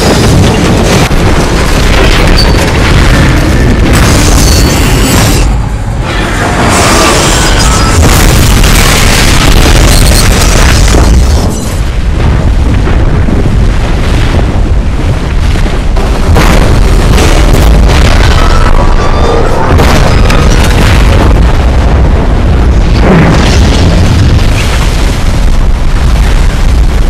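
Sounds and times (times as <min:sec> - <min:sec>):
metal and ice crashes: 0:00.0 - 0:12.0
low rumble: 0:00.0 - 0:27.0.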